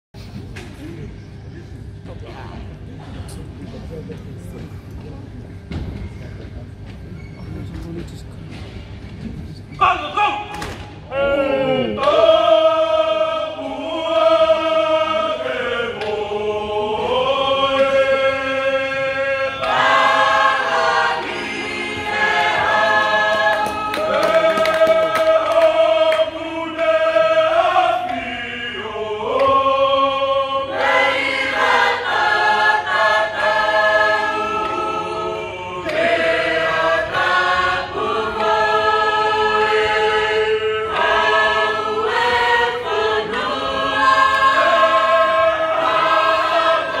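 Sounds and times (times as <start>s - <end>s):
chorus singing a slow chant: 11.1s - 47.0s.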